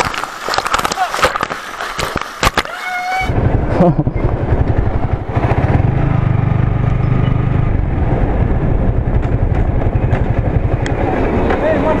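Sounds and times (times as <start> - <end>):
motorcycle engine running: 3.4 - 11.8.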